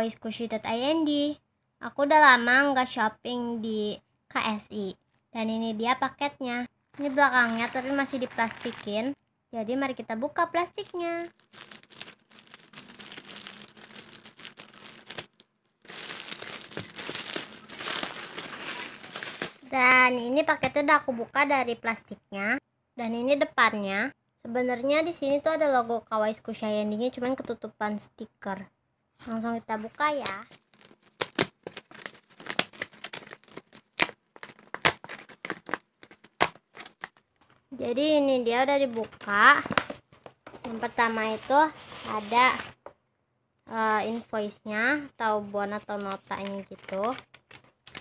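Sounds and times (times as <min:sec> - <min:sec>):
paper envelope ripping: 0:07.0 - 0:09.0, 0:10.7 - 0:19.6, 0:30.2 - 0:37.2, 0:46.0 - 0:48.0
plastic wrapping crinkling and tearing: 0:07.0 - 0:09.0, 0:10.7 - 0:19.7, 0:30.2 - 0:37.2, 0:46.0 - 0:48.0.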